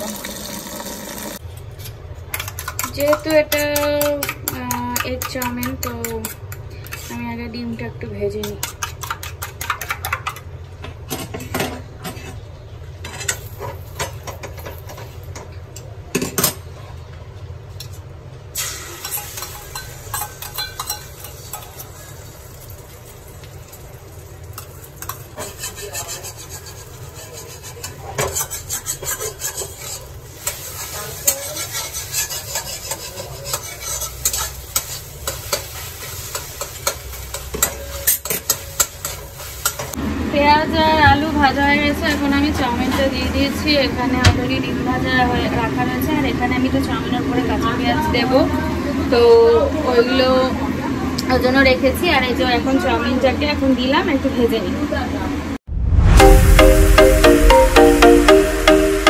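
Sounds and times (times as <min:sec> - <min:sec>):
metal spoon scraping wok: 0:02.5 - 0:07.4, 0:24.6 - 0:40.0
egg sizzling in hot oil: 0:18.6 - 0:40.0.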